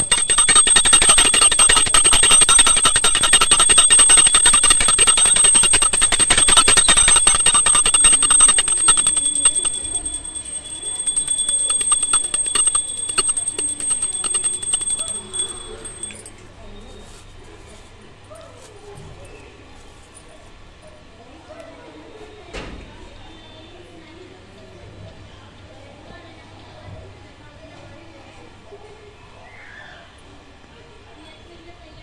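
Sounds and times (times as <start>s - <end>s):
small brass hand bell ringing: 0.0s - 16.3s.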